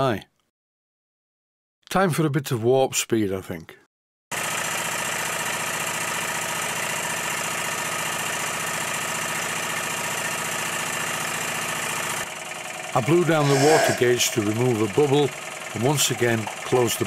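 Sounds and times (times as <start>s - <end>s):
steam engine chuffing: 6.0s - 17.0s.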